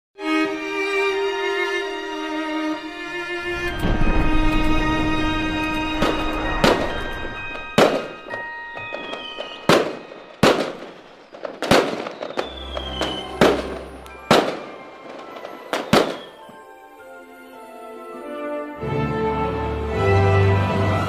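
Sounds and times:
orchestral music: 0.2 - 21.0
fireworks bangs: 3.6 - 16.6
falling firework whistles: 3.7 - 16.6.

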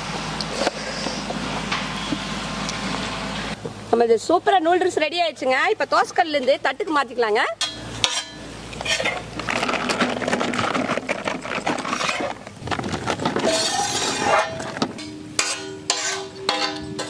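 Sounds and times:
metal spatulas scraping griddle: 7.6 - 12.4, 13.2 - 17.0.

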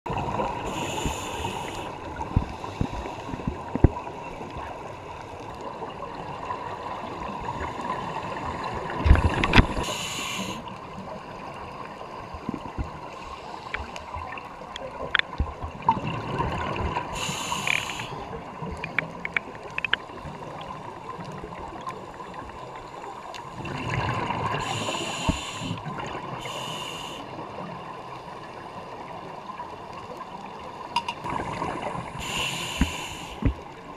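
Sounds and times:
diver inhaling through regulator: 0.6 - 3.5, 9.8 - 10.7, 17.1 - 18.2, 24.6 - 27.3, 32.1 - 33.6
small clicks and crackles: 0.9 - 6.9, 9.0 - 9.9, 10.8 - 16.0, 17.5 - 23.6
exhaled bubbles underwater: 14.0 - 22.4, 23.5 - 27.1, 31.2 - 33.9.

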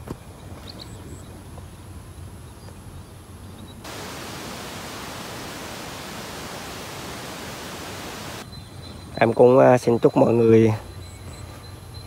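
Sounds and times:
steady static hiss: 1.7 - 8.4.

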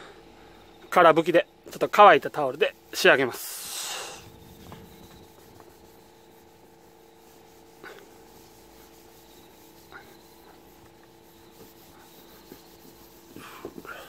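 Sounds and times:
steady low hum: 0.0 - 14.0
cloth rubbing plastic lens: 3.8 - 13.9.

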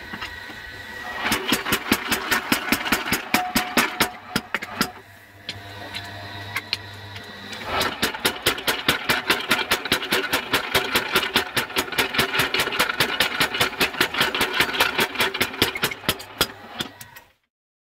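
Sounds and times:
power hammer pounding steel: 1.2 - 5.6, 7.5 - 16.9.

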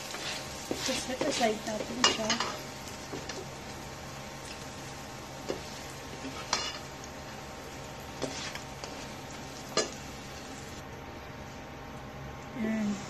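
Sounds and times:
turner clinking and scraping pan: 0.0 - 3.4, 5.4 - 6.9
hot oil sizzling in pan: 0.0 - 10.9.

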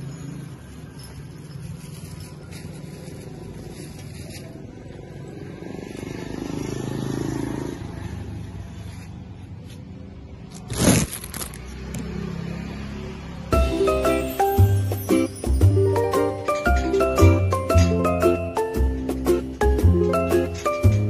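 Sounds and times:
motorbike passing: 0.0 - 21.0
street traffic: 0.0 - 21.0.

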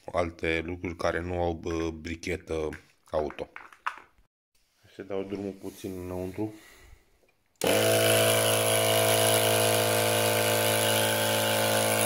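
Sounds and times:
air compressor humming: 7.6 - 12.0.

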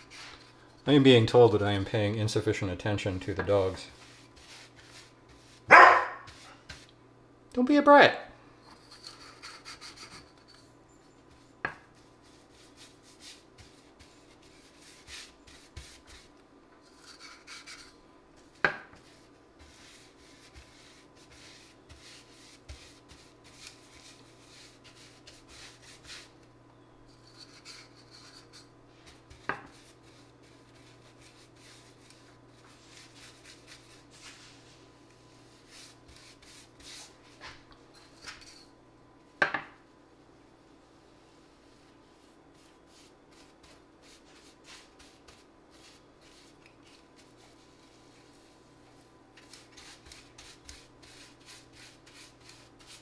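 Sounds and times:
paintbrush swishing on board: 3.3 - 6.9, 11.3 - 26.4, 27.5 - 37.6, 41.5 - 48.7, 49.4 - 53.0.

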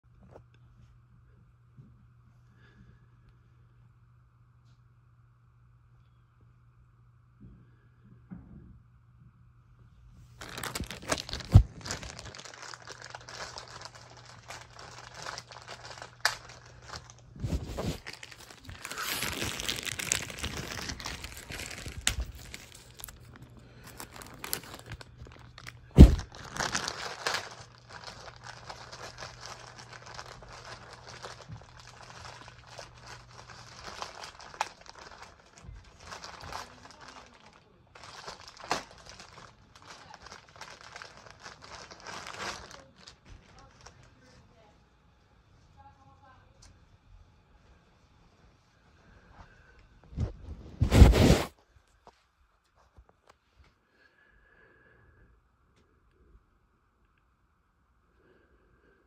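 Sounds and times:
plastic mailer bag crinkling: 10.3 - 44.1.

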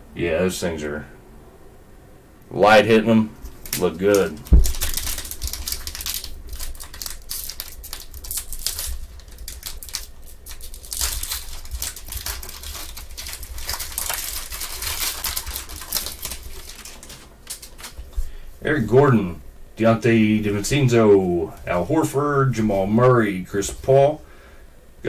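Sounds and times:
foil wrapper crinkling and tearing: 3.4 - 18.3.

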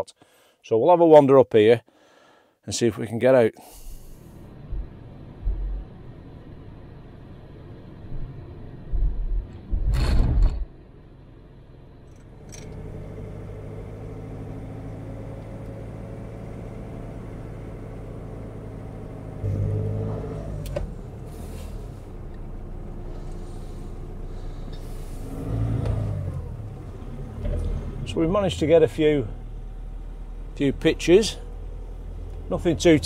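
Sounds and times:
car engine hum: 3.7 - 9.9, 10.6 - 33.0
road noise: 10.8 - 33.0.

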